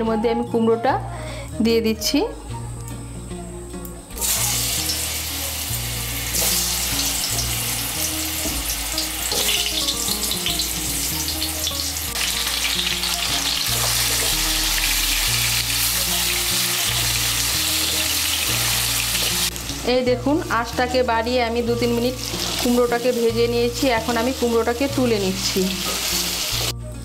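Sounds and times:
pumpkin frying in hot oil: 0:04.2 - 0:19.8.

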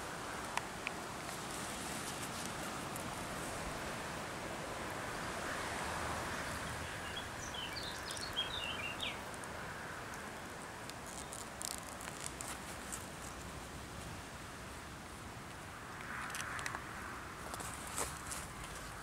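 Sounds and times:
bird chirping: 0:06.5 - 0:09.2
clicks and rustles of handling: 0:10.8 - 0:14.1.

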